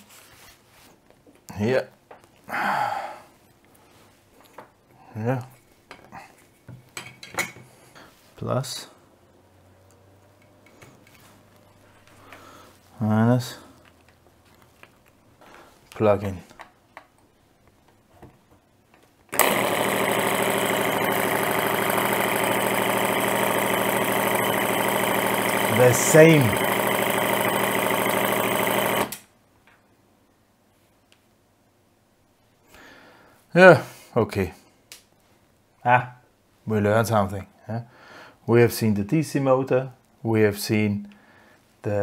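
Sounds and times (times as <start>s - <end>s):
air horn compressor buzzing hum: 19.3s - 29.1s.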